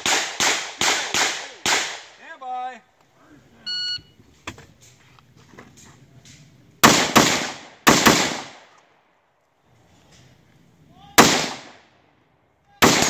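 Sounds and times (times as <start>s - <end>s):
rifle shots echoing: 0.0s - 2.2s, 6.8s - 8.8s, 11.2s - 11.9s, 12.8s - 13.0s.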